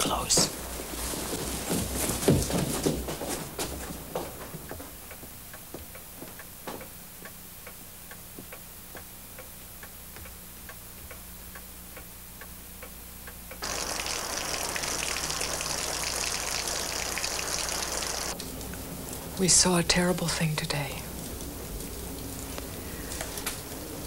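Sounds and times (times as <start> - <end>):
steady hiss: 13.6 - 20.0.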